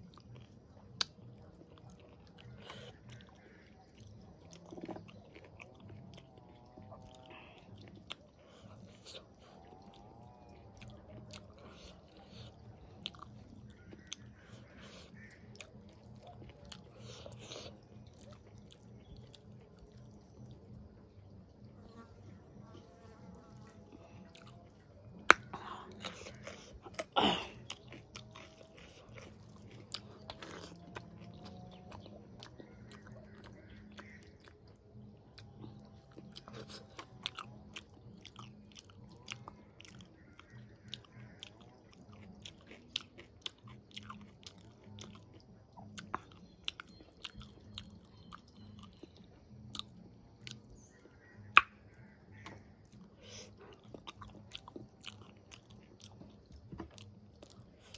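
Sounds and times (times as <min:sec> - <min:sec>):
close chewing and biting: 0:00.0 - 0:57.9
wet mouth clicks: 0:25.1 - 0:28.4, 0:51.4 - 0:57.9.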